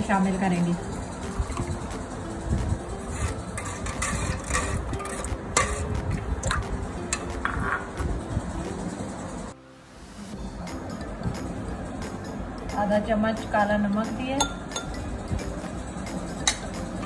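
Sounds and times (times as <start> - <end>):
steel ladle scraping pot: 2.9 - 8.0.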